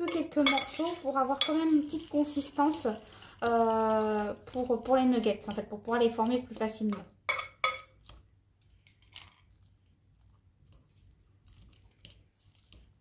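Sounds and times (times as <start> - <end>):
soft squishing scrapes: 0.1 - 7.1, 8.0 - 13.0.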